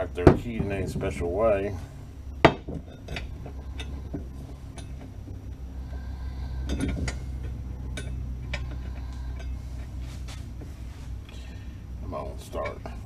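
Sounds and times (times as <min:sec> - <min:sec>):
steady low hum: 0:00.0 - 0:13.0
metal bolts clicking and scraping: 0:02.4 - 0:10.7, 0:12.1 - 0:13.0.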